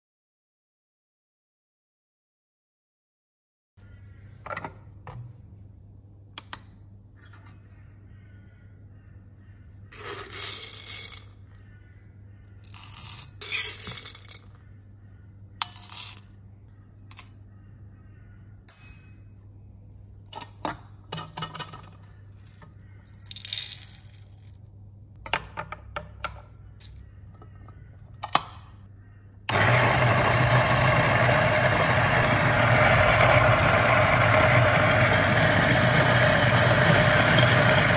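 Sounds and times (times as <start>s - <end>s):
coffee beans rattling in a cup: 9.9s - 11.4s, 12.6s - 14.6s, 22.4s - 24.7s
coffee grinder motor: 29.5s - 37.9s.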